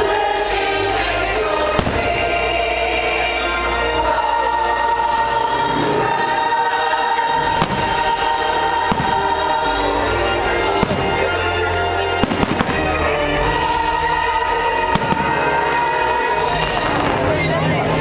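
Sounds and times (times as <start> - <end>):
music with choir singing: 0.0 - 18.0
fireworks bangs: 1.8 - 2.2, 7.4 - 8.2, 8.8 - 9.5, 10.7 - 11.3, 12.2 - 13.0, 14.9 - 15.6.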